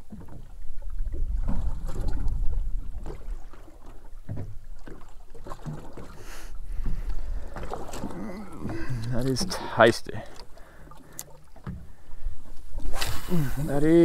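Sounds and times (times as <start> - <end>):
water slapping on hull: 0.0 - 14.0
wind rumble on microphone: 0.9 - 3.4.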